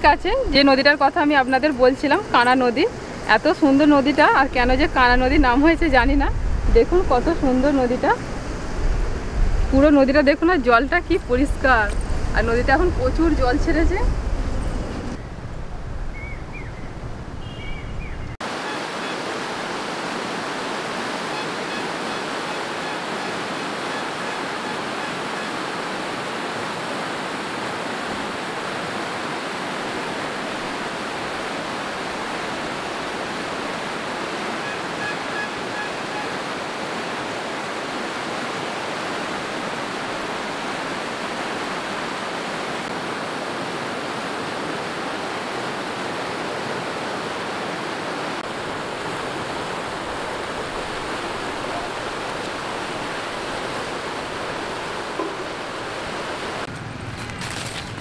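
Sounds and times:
water rushing under bridge: 0:18.4 - 0:58.0.

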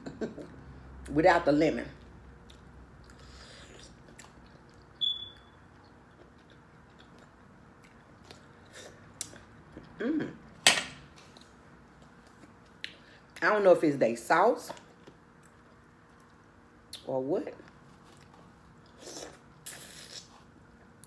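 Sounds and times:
person chewing wetly: 0:02.4 - 0:10.0
short squeak: 0:05.0 - 0:05.6.

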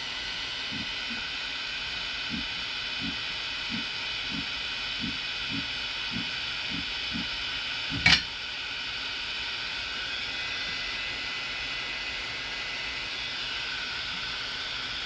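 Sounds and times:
cooling fans whirring: 0:00.0 - 0:15.0.

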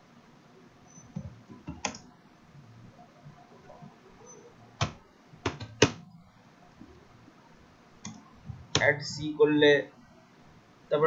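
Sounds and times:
computer keyboard clicks: 0:01.2 - 0:02.0.

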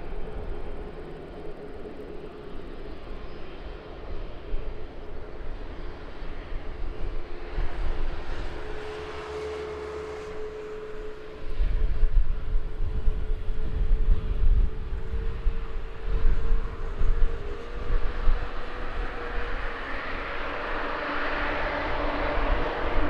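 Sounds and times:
jet airliner passing: 0:00.0 - 0:23.0
wind buffeting microphone: 0:10.0 - 0:23.0.

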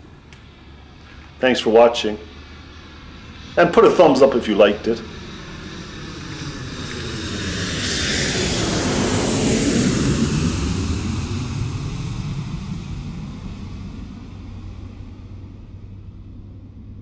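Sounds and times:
jet aircraft flying past: 0:00.0 - 0:17.0.

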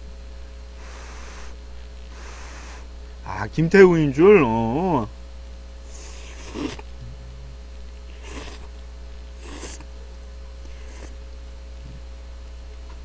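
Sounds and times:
steady electrical hum: 0:00.0 - 0:13.0
man slurping noodles: 0:05.9 - 0:06.9, 0:08.1 - 0:08.7, 0:09.4 - 0:09.8, 0:10.7 - 0:11.2.

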